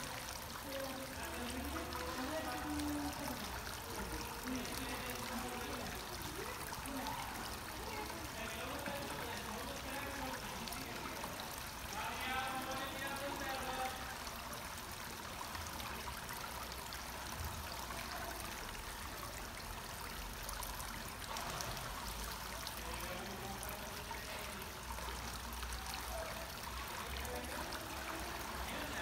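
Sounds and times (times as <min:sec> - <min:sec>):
pool water splashing: 0:00.0 - 0:29.0.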